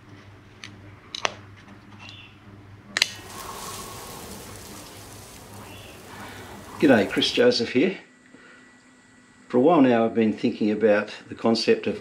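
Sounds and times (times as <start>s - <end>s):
steady hiss: 3.0s - 7.7s.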